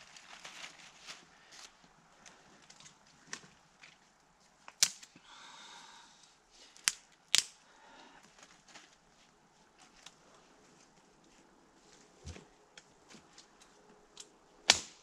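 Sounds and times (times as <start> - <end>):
kindling snapping: 4.7 - 5.1, 6.8 - 7.6, 14.1 - 15.0.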